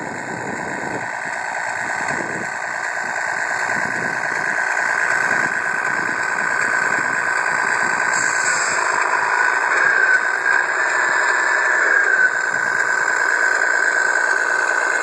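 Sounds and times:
mechanical whine of model truck: 0.0 - 15.0.

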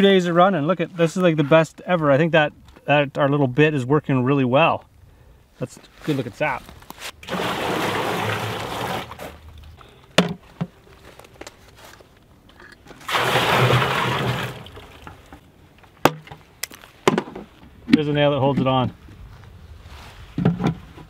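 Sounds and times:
liquid pouring into plastic drum: 7.2 - 9.4, 13.0 - 15.4.

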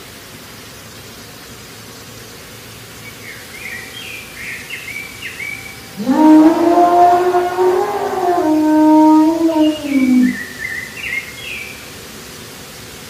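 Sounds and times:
outdoor background hiss: 0.0 - 13.0
bird chirping: 6.0 - 10.8.

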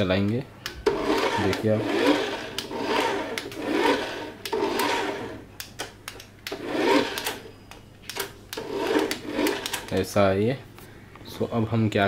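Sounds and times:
toy car motor whirring: 0.8 - 5.5, 6.5 - 7.4, 8.6 - 9.9.

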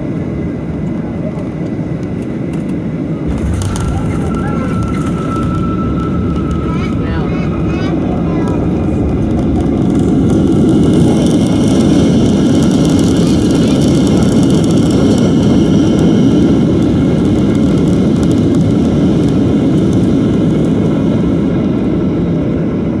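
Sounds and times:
jet engine cabin rumble: 0.0 - 23.0
faint high whine: 3.2 - 10.2.

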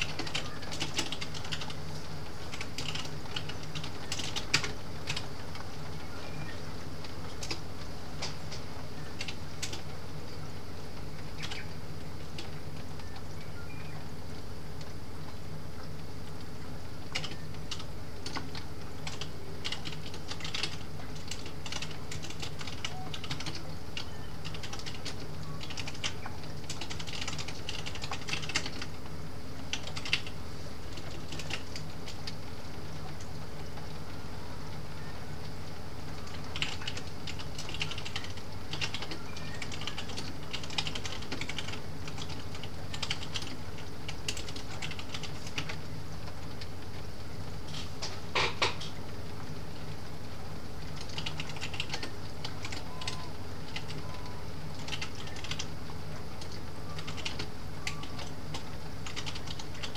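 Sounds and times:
typing on computer keyboard: 0.0 - 1.8, 2.5 - 5.7, 7.3 - 7.6, 8.2 - 9.9, 11.4 - 11.7, 17.1 - 29.0, 29.7 - 32.4, 36.2 - 45.8, 50.8 - 55.7, 56.4 - 59.9
steady low hum: 0.0 - 59.9.

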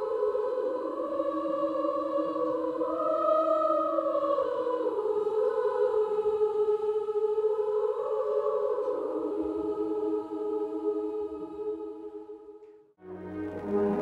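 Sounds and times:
slow sustained chords music: 13.0 - 14.0.

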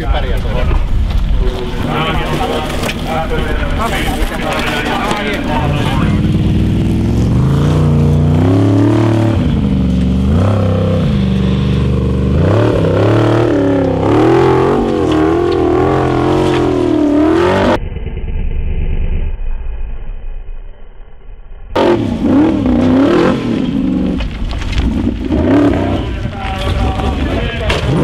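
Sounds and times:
muffled engine running: 0.4 - 20.5
buggy engine revving hard: 1.8 - 17.8, 21.8 - 28.0.

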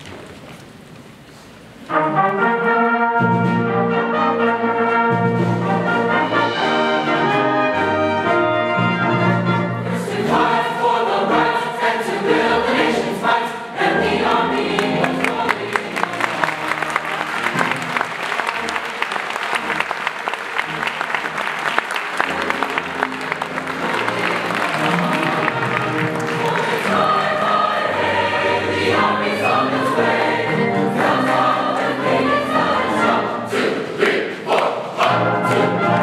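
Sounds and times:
choir singing sustained chords: 9.6 - 16.4, 24.0 - 36.0
audience applause: 14.7 - 27.7.

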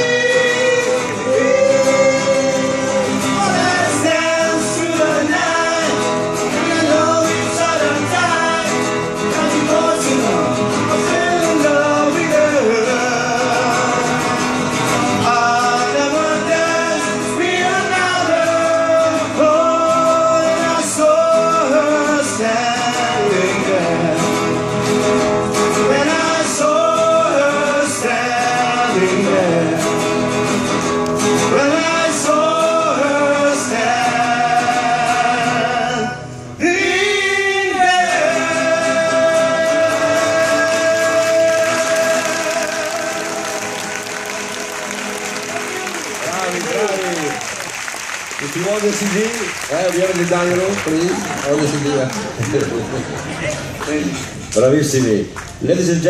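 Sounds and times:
men singing together: 0.0 - 24.5, 25.7 - 30.2, 31.3 - 44.6
strummed acoustic guitar: 0.0 - 47.5.

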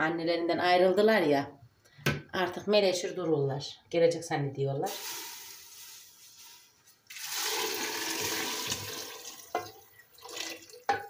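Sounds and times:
water pouring into a pot: 4.9 - 11.0.

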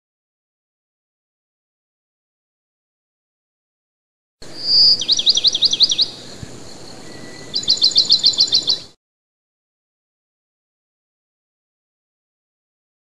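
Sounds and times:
songbird singing: 4.4 - 9.0.

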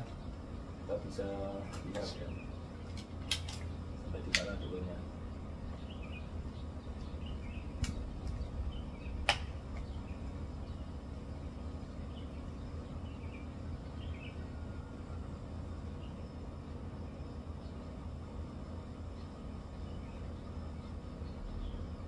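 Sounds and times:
steady low hum: 0.0 - 22.0
air rifle mechanical clicks: 2.9 - 3.7.

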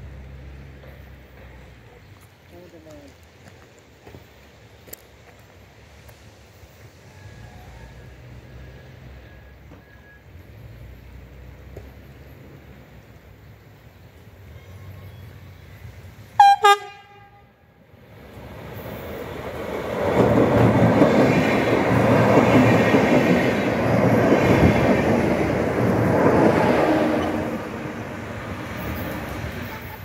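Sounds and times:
train wheels rumbling on rails: 0.0 - 16.4, 17.9 - 30.0
train horn blasts: 16.4 - 17.7.

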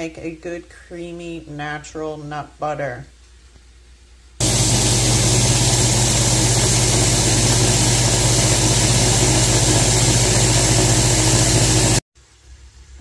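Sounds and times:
blender grinding seeds: 4.4 - 12.0.

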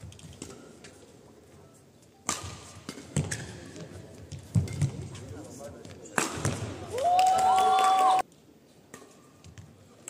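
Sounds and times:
racket hitting shuttlecock: 2.2 - 3.6, 6.2 - 6.7.

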